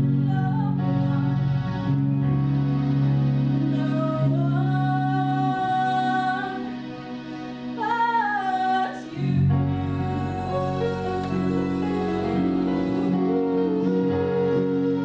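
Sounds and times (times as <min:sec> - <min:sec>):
woman singing ballad: 0:00.0 - 0:01.4, 0:03.7 - 0:06.8, 0:07.8 - 0:15.0
sustained backing chords: 0:00.0 - 0:15.0.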